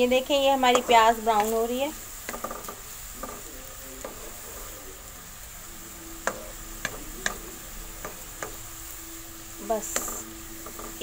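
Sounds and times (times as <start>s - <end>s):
onions sizzling in hot oil: 0.0s - 11.0s
wooden spoon knocking on pan: 0.7s - 4.3s, 6.2s - 8.7s, 9.6s - 11.0s.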